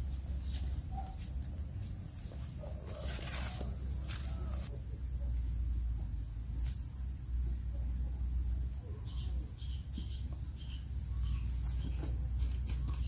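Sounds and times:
leafy branches rustling: 0:00.0 - 0:04.7
insect chirping in pulses: 0:03.8 - 0:13.0.

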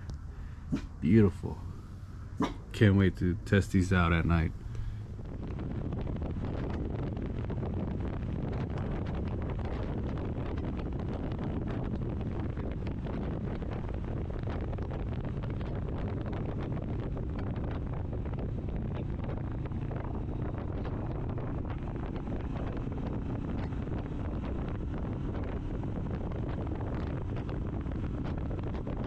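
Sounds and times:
road noise: 0:00.0 - 0:29.0
wind rushing over microphone: 0:00.0 - 0:29.0
motorcycle engine: 0:13.5 - 0:29.0.

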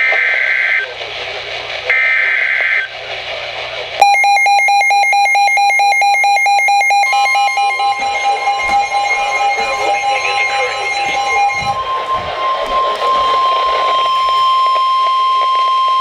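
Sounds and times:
steady alert tone: 0:04.0 - 0:15.0
pulsing alarm beep: 0:04.0 - 0:16.0
digital data screech: 0:04.1 - 0:15.4.

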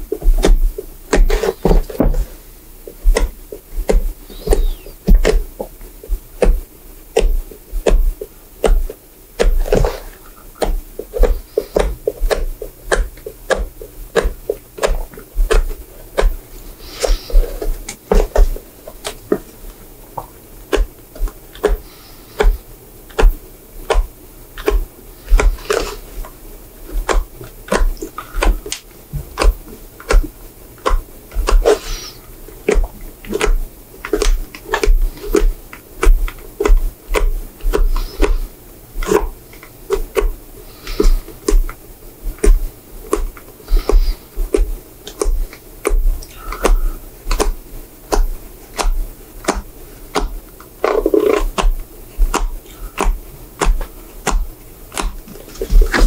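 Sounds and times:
stitches snapping: 0:26.9 - 0:38.4, 0:42.4 - 0:56.0.

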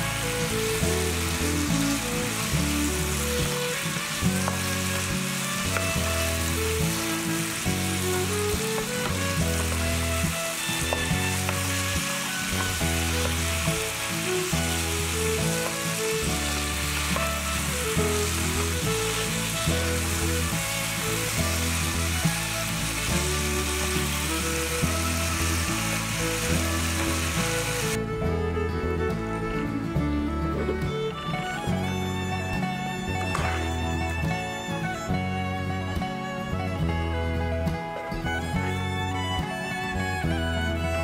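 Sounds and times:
background music with bass line: 0:00.0 - 0:41.0
ribs sizzling in a frying pan: 0:00.1 - 0:28.0.

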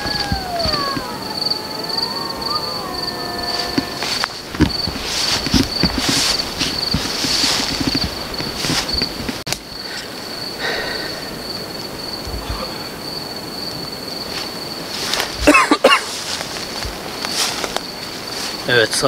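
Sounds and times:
loud wavering sound: 0:00.0 - 0:04.6
cricket trilling: 0:00.0 - 0:19.0
footsteps rustling through grass: 0:02.6 - 0:09.4, 0:14.2 - 0:19.0.

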